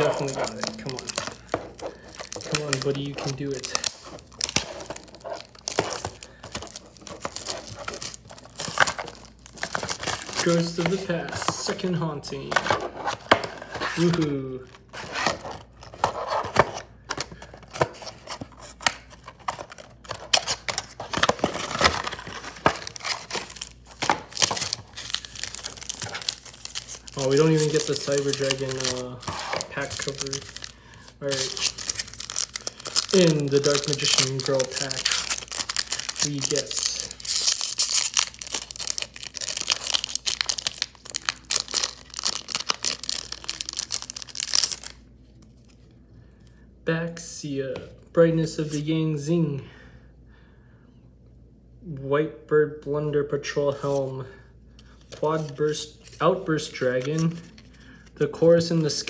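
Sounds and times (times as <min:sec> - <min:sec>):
foil crinkling: 0:00.0 - 0:11.8, 0:19.3 - 0:45.0.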